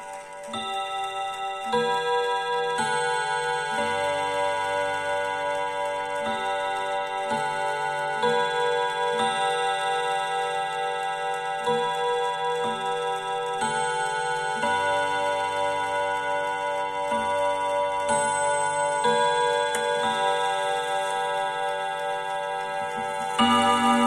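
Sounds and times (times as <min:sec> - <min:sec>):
clock chiming on rod gongs: 0:00.0 - 0:24.0.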